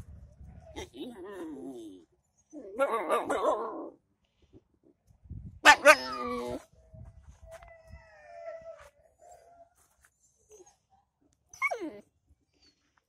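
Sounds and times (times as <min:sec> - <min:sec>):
puppies howling and whining: 0:07.5 - 0:09.7, 0:11.6 - 0:12.0.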